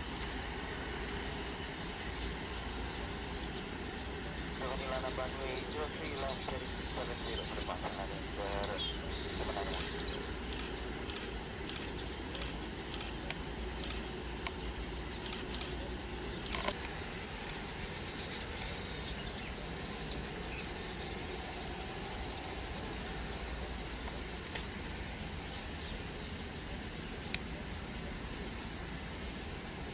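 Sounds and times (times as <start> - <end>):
insects chirring: 0.0 - 29.9
sharp click: 24.5 - 24.7.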